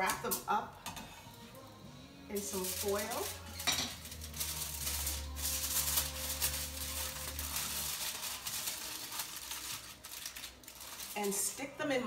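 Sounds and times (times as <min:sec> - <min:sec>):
aluminium foil crinkling: 0:02.4 - 0:11.9.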